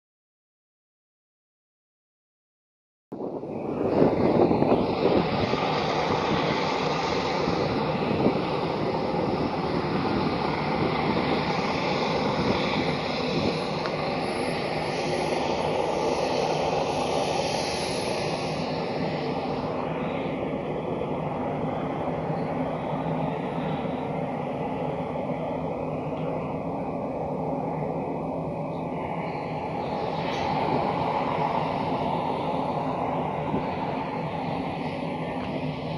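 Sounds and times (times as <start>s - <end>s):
engine droning: 3.2s - 35.9s
bright hiss: 3.8s - 26.4s.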